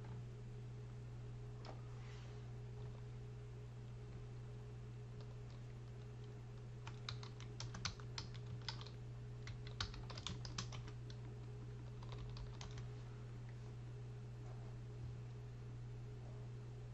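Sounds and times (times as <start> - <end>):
steady low hum: 0.0 - 16.9
typing on keyboard: 5.2 - 12.8.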